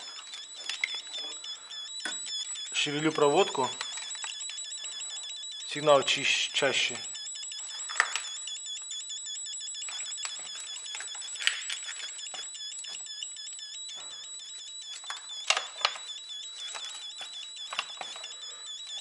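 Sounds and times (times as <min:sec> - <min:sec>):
multimeter continuity beeping: 0:00.0 - 0:19.0
clicks of wires and connectors: 0:00.1 - 0:02.4, 0:03.7 - 0:05.0, 0:07.8 - 0:08.4, 0:09.8 - 0:14.2, 0:14.9 - 0:18.3.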